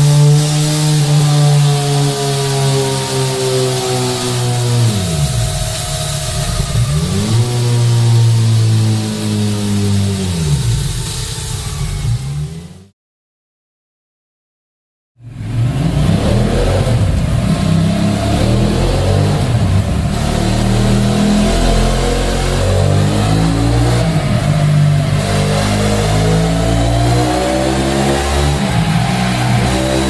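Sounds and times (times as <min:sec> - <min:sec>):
motorcycle engine revving: 0:00.0 - 0:12.9, 0:15.2 - 0:30.0.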